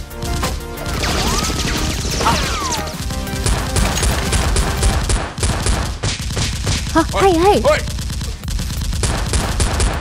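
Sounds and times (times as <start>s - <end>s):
dramatic background music: 0.0s - 5.4s
rapid gunfire: 0.0s - 10.0s.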